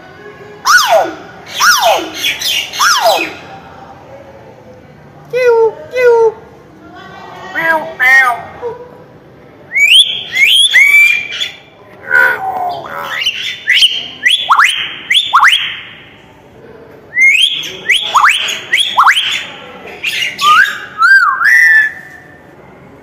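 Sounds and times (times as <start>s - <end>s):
myna calling shrill whistles: 9.7s - 15.9s, 20.1s - 22.2s.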